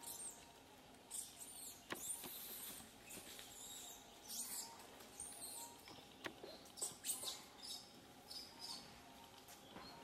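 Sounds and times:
animal chirps and squeaks: 1.1 - 8.9.

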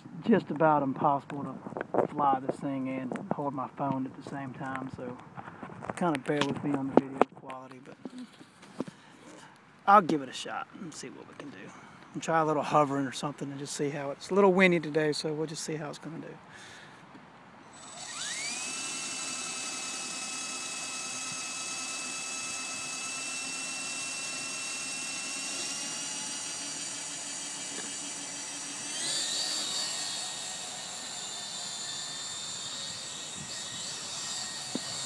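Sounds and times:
toy helicopter motor whine: 17.6 - 35.0.

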